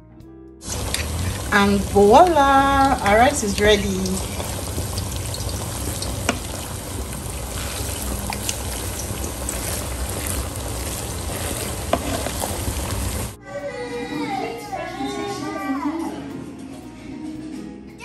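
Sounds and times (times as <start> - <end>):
steady sizzle from pot: 0.6 - 13.4
wooden spatula stirring rice in pot: 0.7 - 13.4.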